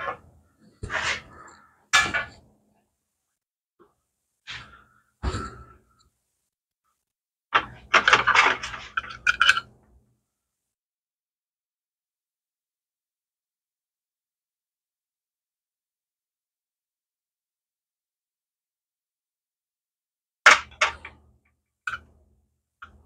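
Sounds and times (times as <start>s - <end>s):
knocks and rattles of small parts: 1.9s - 2.5s, 7.5s - 10.0s, 20.4s - 23.0s.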